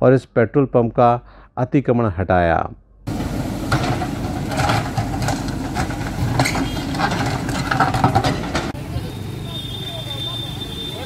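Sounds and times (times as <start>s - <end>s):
diesel engine running: 3.1s - 11.0s
bucket breaking concrete: 3.7s - 8.8s.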